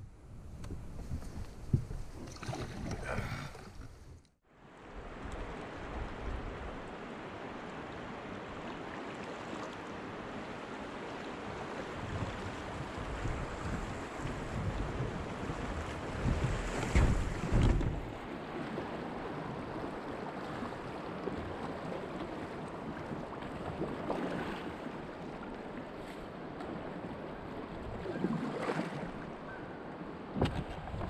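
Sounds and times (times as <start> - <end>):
wind buffeting microphone: 0.0 - 4.2, 11.9 - 18.3
paddle strokes splashing: 1.0 - 4.0, 11.0 - 29.4.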